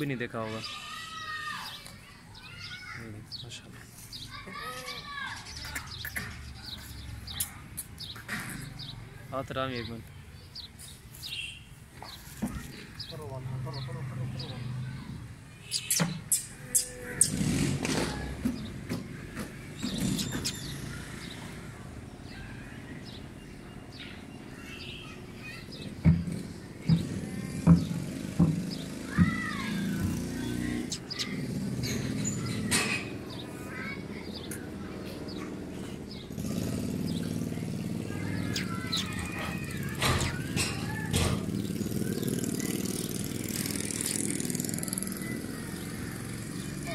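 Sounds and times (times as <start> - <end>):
small birds chirping: 0.0 - 46.9
sharp knocks: 39.9 - 41.6.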